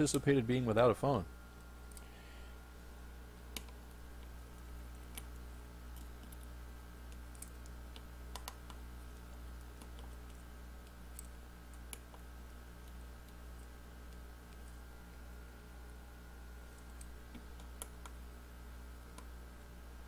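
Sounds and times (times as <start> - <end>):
low electrical hum: 0.0 - 20.0.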